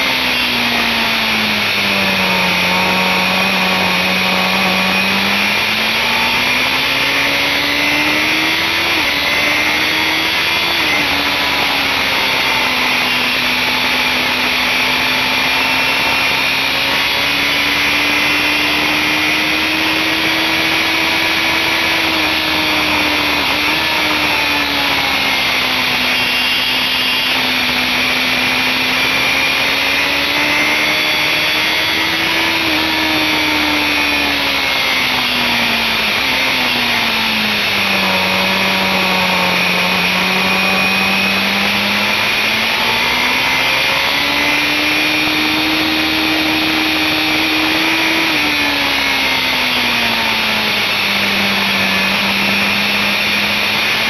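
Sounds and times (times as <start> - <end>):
motorcycle engine at high revs: 0.0 - 54.0.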